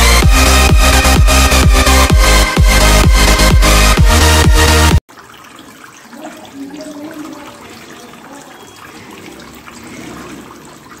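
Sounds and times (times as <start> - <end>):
water trickling into bowl: 5.1 - 11.0.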